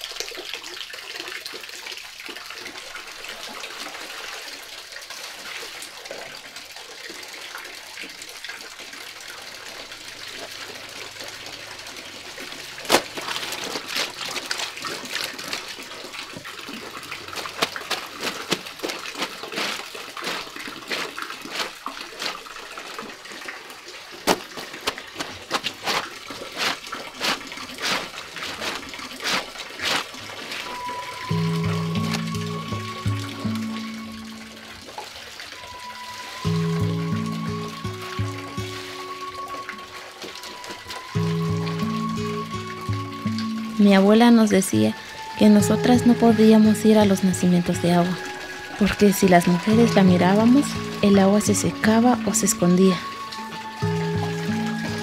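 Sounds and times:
water running and splashing: 0:00.0 - 0:55.0
wet cloth scrubbed on washboard: 0:12.8 - 0:22.6, 0:24.2 - 0:30.9.

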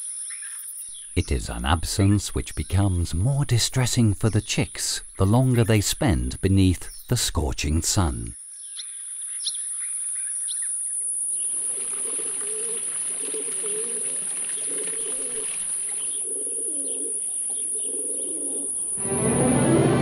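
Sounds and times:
small birds chirping: 0:00.0 - 0:19.0
fountain water splashing: 0:11.5 - 0:16.0
pigeons cooing: 0:11.5 - 0:19.0
high steady whine: 0:19.0 - 0:20.0.

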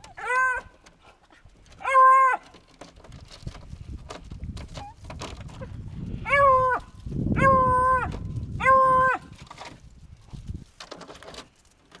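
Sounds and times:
dogs baying: 0:00.0 - 0:02.5.

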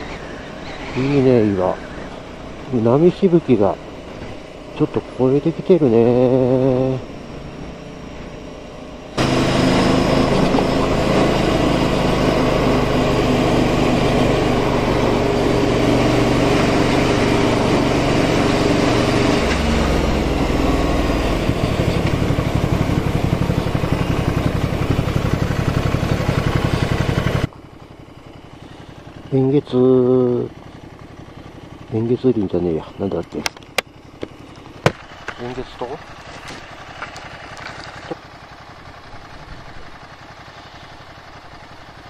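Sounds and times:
motorcycle engine running: 0:00.0 - 0:42.0.

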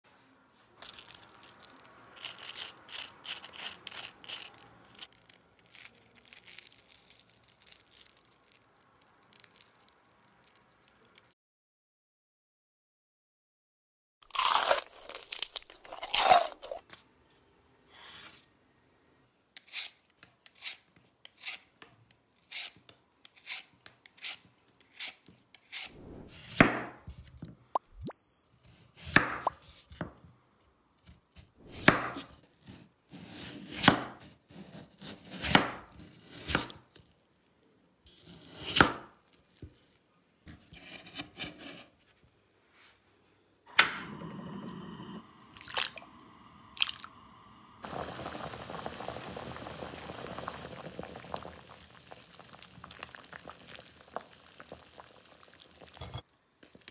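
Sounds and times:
knife chopping on cutting board: 0:26.4 - 0:27.0, 0:31.7 - 0:32.4, 0:33.2 - 0:34.3, 0:35.0 - 0:35.8.

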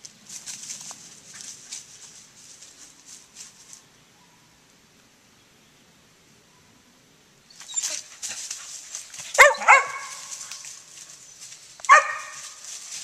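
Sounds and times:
rustling through leafy undergrowth: 0:00.0 - 0:03.9, 0:07.5 - 0:13.0
dog barking: 0:09.4 - 0:10.4, 0:11.9 - 0:12.5.

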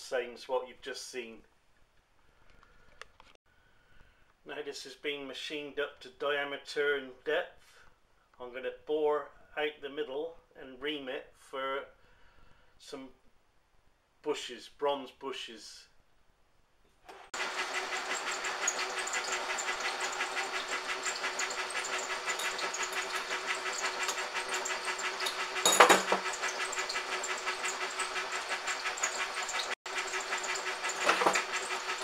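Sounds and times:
drill boring into metal: 0:17.1 - 0:32.0
metal lathe running: 0:17.2 - 0:32.0.

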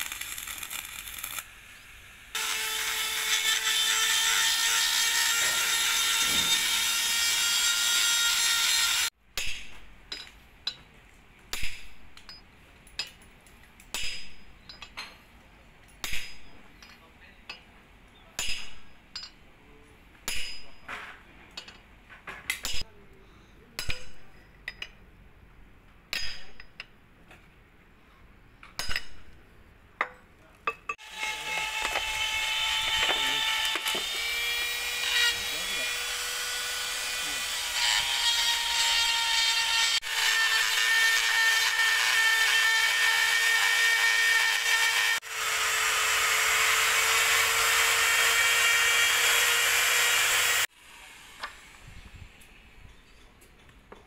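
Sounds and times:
arc welding crackling sizzle: 0:00.0 - 0:02.4
metal clinks and knocks: 0:11.7 - 0:17.7, 0:20.3 - 0:22.8.

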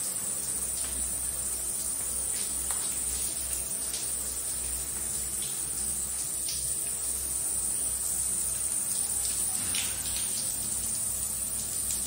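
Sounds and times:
shower water running: 0:00.0 - 0:12.0.

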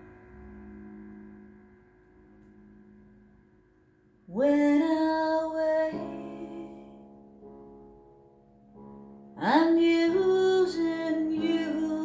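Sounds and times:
slow solo piano: 0:00.0 - 0:12.0.

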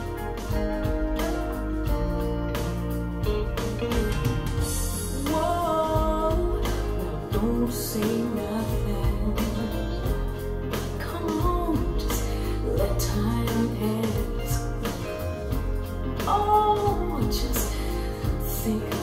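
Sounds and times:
pop song over speakers: 0:00.0 - 0:19.0
woman singing: 0:03.2 - 0:19.0.

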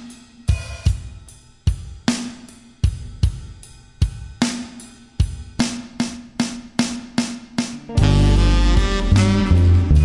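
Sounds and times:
drum kit beat: 0:00.0 - 0:10.0
low held note: 0:07.6 - 0:10.0.

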